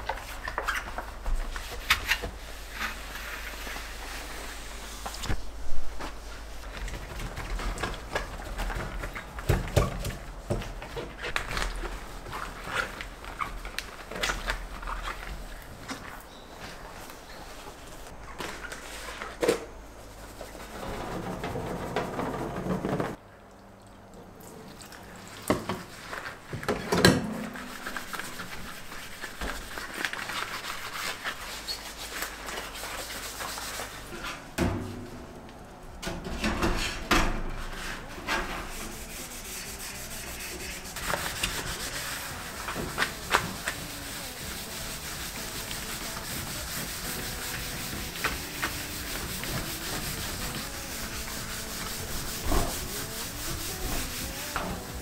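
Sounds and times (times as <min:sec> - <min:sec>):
sponge scrubbing steel sink: 0:27.3 - 0:34.1, 0:37.6 - 0:55.0.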